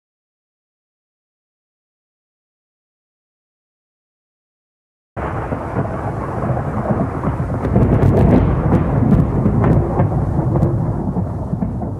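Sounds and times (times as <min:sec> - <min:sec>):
sharp crackles: 0:05.2 - 0:11.9
thunder rumbling: 0:05.2 - 0:11.9.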